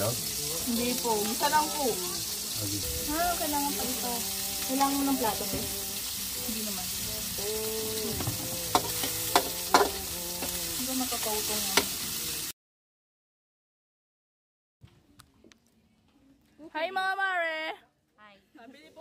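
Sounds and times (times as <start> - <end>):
food sizzling: 0.0 - 12.6.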